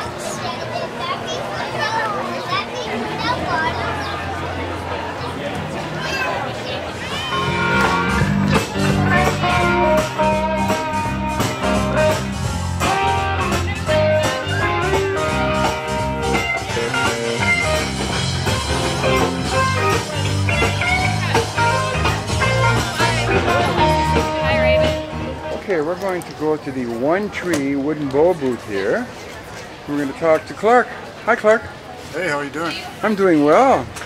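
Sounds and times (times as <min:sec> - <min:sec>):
blues band music with guitar: 0:07.0 - 0:25.6.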